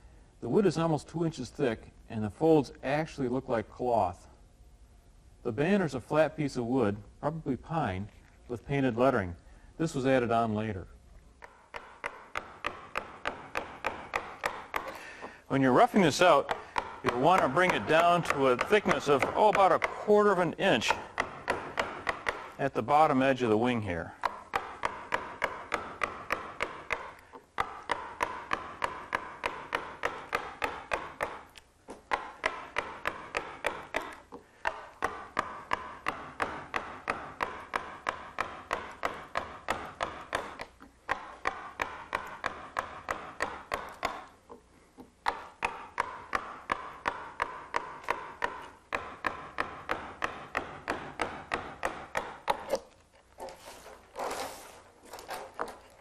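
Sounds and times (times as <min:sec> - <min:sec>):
mallet tapping a gouge: 0:09.9 - 0:10.6, 0:11.4 - 0:53.0.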